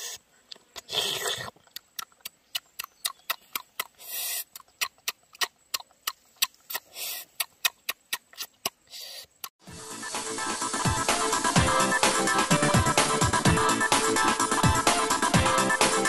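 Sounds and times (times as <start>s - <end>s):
short bursts of hiss: 4.0s - 4.6s, 6.7s - 7.5s, 8.8s - 9.4s.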